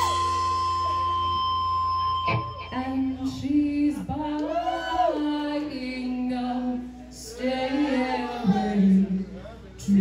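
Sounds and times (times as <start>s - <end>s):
woman singing into a microphone: 2.6s - 10.0s.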